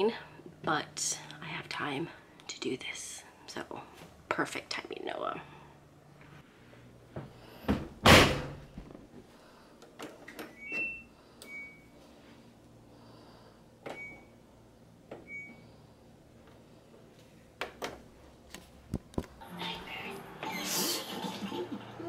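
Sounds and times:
washing machine door thud: 0:07.7 - 0:08.6.

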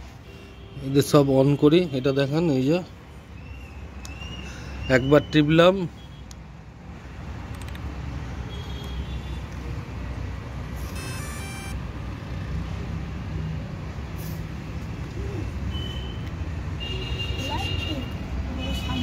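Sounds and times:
road traffic rumble: 0:00.0 - 0:19.0
short electronic beeps: 0:10.8 - 0:11.8
multi-tone chime: 0:10.9 - 0:11.8.

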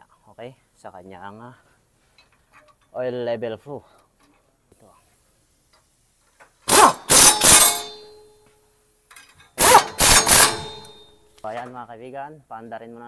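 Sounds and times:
impact wrench hammering: 0:06.7 - 0:08.3, 0:09.6 - 0:11.2
metallic ring: 0:06.7 - 0:08.5, 0:09.2 - 0:11.4.

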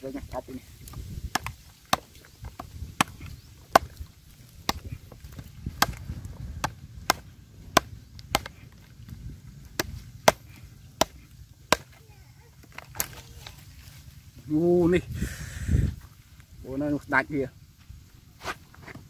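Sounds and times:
knife chopping hard earth: 0:00.8 - 0:08.8, 0:09.7 - 0:12.0.

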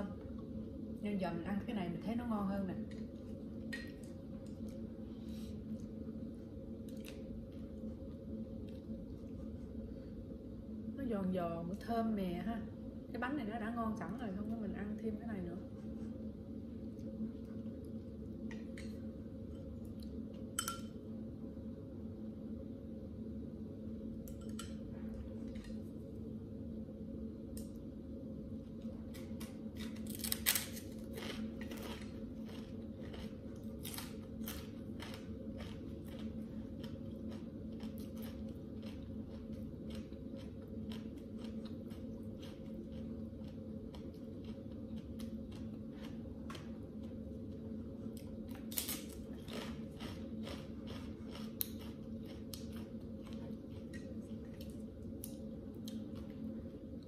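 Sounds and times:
steady low hum: 0:00.0 - 0:57.0
rice cracker crunching: 0:29.2 - 0:47.2, 0:48.6 - 0:56.3.

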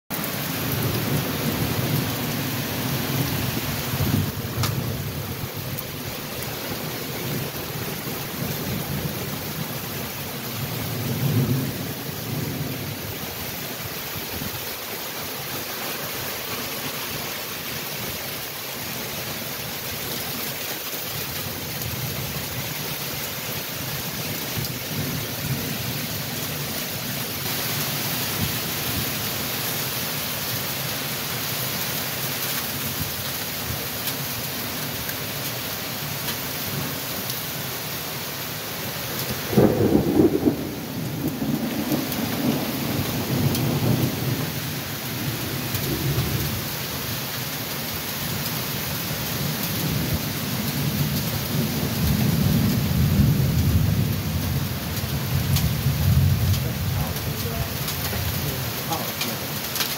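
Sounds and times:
gusty wind in trees: 0:00.1 - 0:16.5, 0:38.6 - 0:59.9
heavy rain pouring: 0:00.1 - 0:59.9
low thunder rumble: 0:39.4 - 0:46.7, 0:49.8 - 0:59.0.

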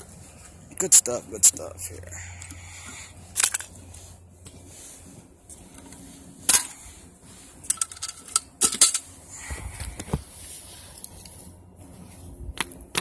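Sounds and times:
metal clicks and clinks: 0:07.7 - 0:09.1.

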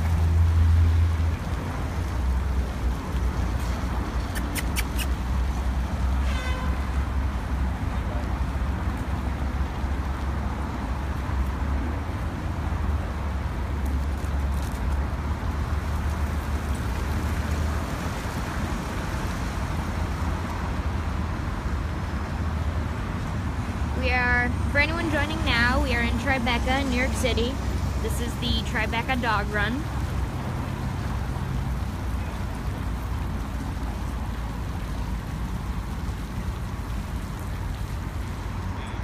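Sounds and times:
sprinkler water hissing: 0:00.0 - 0:06.2, 0:25.0 - 0:39.0
low traffic rumble: 0:00.0 - 0:39.0.

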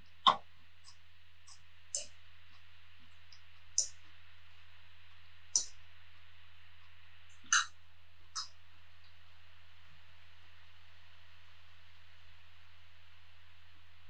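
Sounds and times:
low electrical hum: 0:00.0 - 0:14.0
sharp eating clicks: 0:03.3 - 0:04.2, 0:05.6 - 0:07.8.

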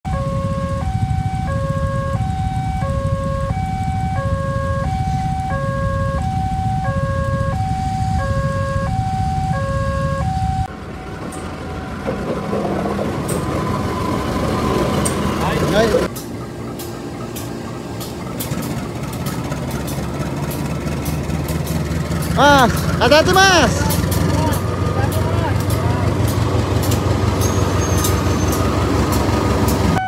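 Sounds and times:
low rumble of engines: 0:00.0 - 0:30.0
level-crossing alarm two-note tone: 0:00.1 - 0:10.7.

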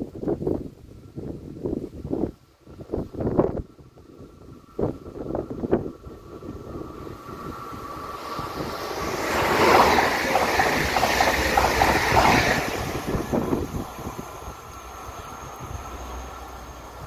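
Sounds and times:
train rushing past: 0:04.2 - 0:17.0
wheels clattering over track: 0:07.8 - 0:14.1.

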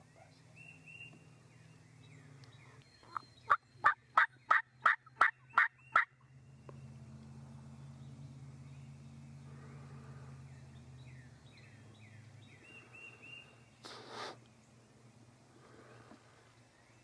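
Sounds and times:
turkey yelps: 0:03.1 - 0:06.1.

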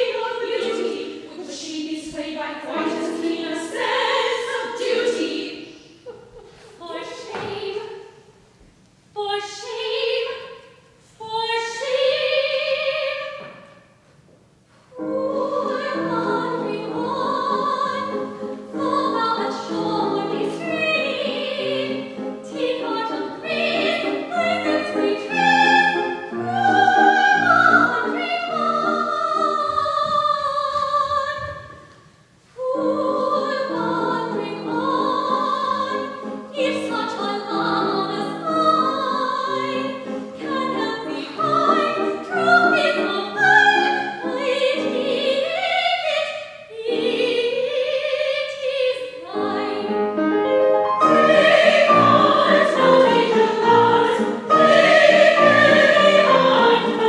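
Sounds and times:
grand piano accompaniment: 0:00.0 - 0:05.8, 0:14.9 - 0:31.9, 0:32.6 - 0:45.8, 0:49.2 - 0:57.0
operatic singing: 0:00.0 - 0:05.9, 0:14.9 - 0:32.0, 0:32.6 - 0:57.0.

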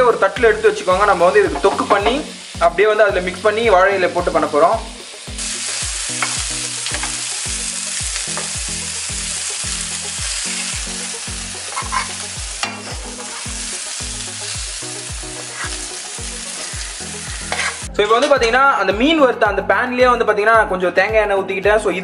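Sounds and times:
fish sizzling in a pan: 0:00.0 - 0:17.9
steel ladle scraping: 0:11.6 - 0:13.6, 0:16.5 - 0:18.4.

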